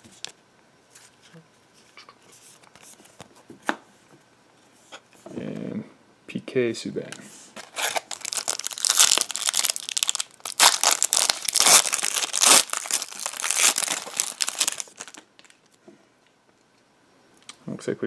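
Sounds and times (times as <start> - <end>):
plastic wrapper crinkling and tearing: 7.6 - 15.8.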